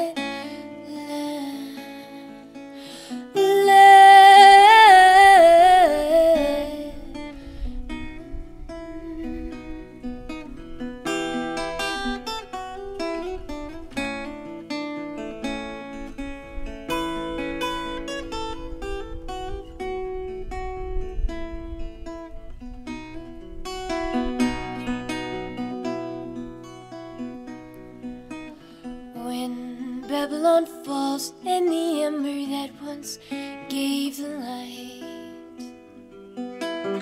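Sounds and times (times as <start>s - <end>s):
woman singing with vibrato: 0.0s - 2.4s, 3.1s - 7.3s, 8.9s - 10.0s, 29.1s - 35.7s
acoustic guitar picking: 0.0s - 37.0s.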